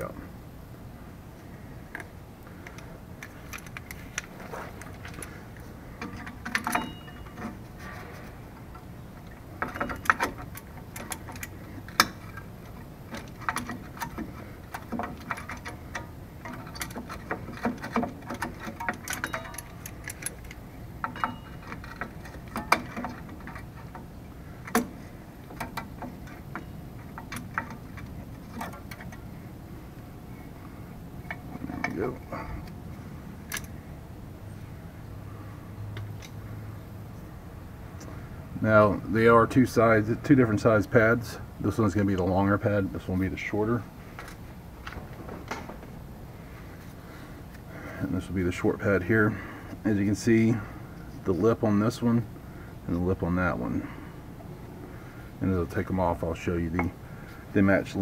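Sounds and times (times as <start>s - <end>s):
metallic clicks and scrapes: 1.9s - 29.4s, 30.4s - 33.8s
sharp metal clanks: 6.0s - 8.1s, 9.6s - 12.5s, 13.1s - 24.1s.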